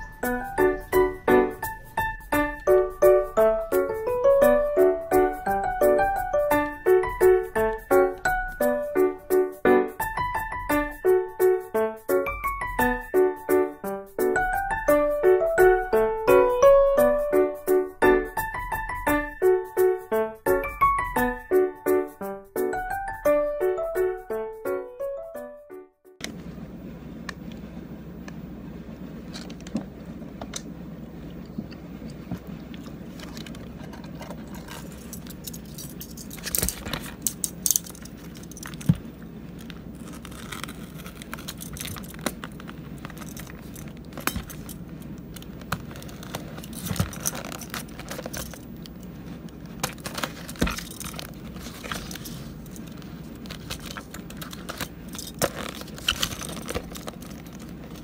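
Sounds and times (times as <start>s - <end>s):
plastic wrapping rustling: 32.2s - 58.0s
paper bag handled: 38.1s - 58.0s.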